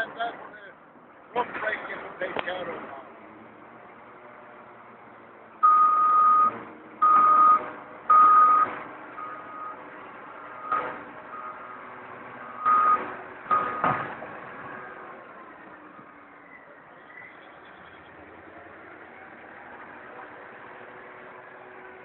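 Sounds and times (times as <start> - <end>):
backup alarm beeping: 5.6 - 9.8, 12.5 - 14.0
heavy machinery running: 6.3 - 16.0.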